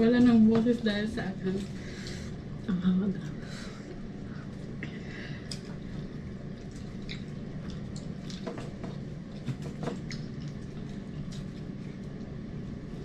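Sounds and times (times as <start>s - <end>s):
steady low hum: 0.0s - 13.0s
chewing and wet smacks: 5.4s - 12.6s.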